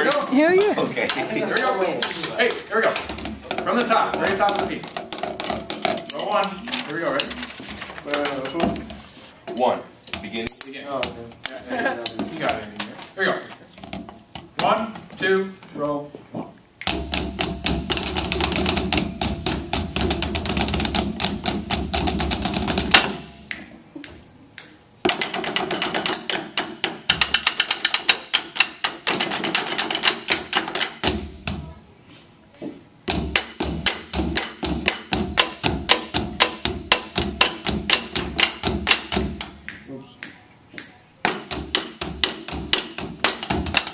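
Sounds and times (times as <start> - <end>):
drumsticks clicking on practice pads: 0.0 - 9.0, 33.1 - 43.9.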